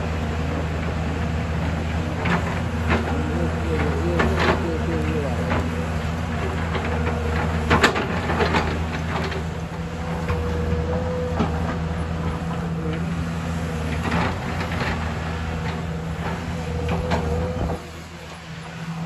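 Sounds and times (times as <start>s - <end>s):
excavator diesel engine running: 0.0s - 19.0s.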